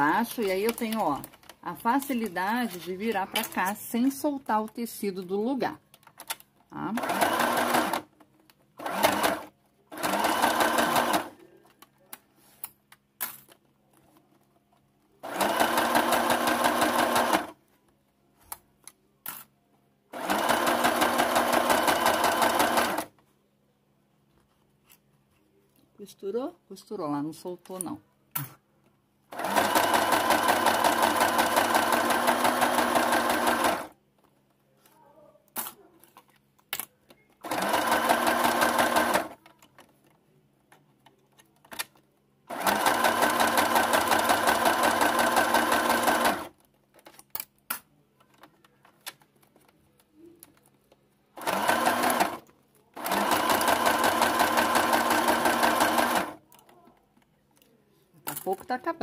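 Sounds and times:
sewing machine stitching: 6.8 - 8.1, 8.8 - 11.4, 15.2 - 17.6, 20.2 - 23.1, 29.3 - 33.9, 37.4 - 39.4, 42.5 - 46.6, 51.4 - 56.4.

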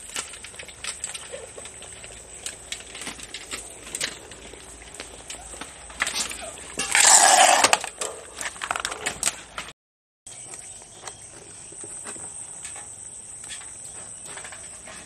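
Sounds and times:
puppies crunching kibble: 0.0 - 9.7.

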